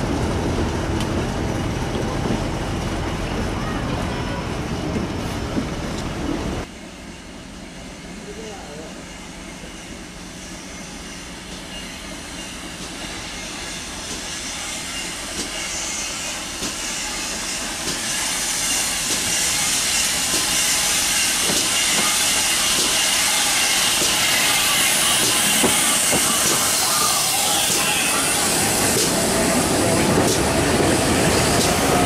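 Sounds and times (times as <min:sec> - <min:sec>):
steam locomotive hissing: 0:06.4 - 0:32.0.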